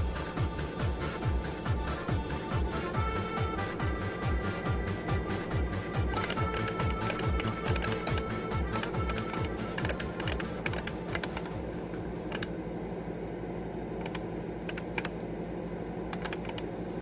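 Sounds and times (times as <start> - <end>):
keyboard key clacks: 6.1 - 11.6.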